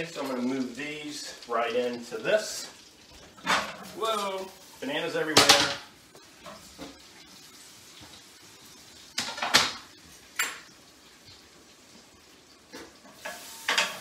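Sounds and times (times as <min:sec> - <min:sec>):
faint background noise: 0:00.0 - 0:14.0
cookware clattering: 0:03.4 - 0:03.9, 0:10.4 - 0:10.7, 0:13.2 - 0:14.0.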